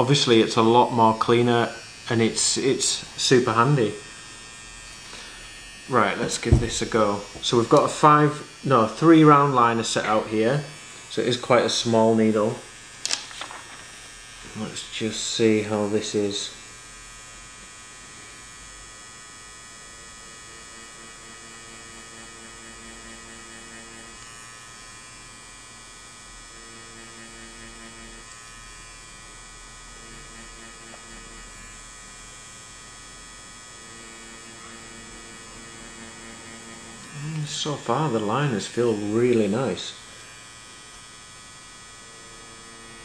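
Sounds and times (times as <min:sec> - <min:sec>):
tattoo pen electric hum: 0:00.0 - 0:43.0
lower hum: 0:06.4 - 0:07.6.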